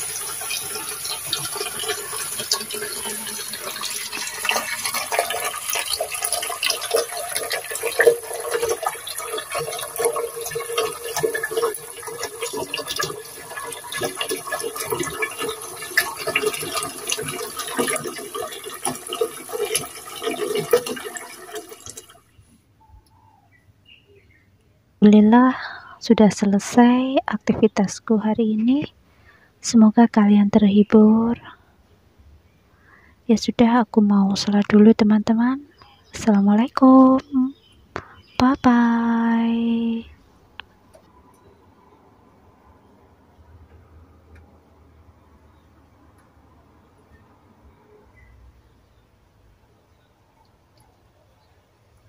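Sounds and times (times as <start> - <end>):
tap water running into sink: 0.0 - 22.2.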